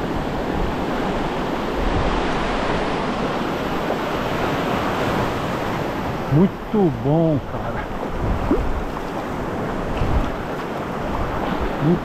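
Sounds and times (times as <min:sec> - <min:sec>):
ocean surf washing in: 0:00.0 - 0:12.0
wind buffeting microphone: 0:07.4 - 0:12.0.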